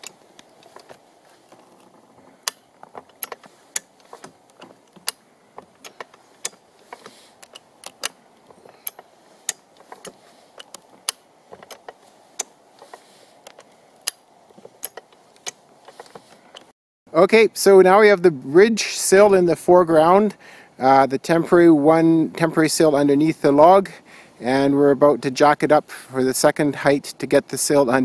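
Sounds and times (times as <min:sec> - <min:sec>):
jack ratcheting clicks: 0:00.0 - 0:16.7.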